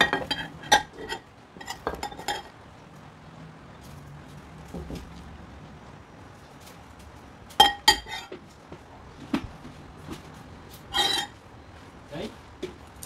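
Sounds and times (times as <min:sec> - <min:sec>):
fork clinking against glass bowl: 0:10.9 - 0:11.3.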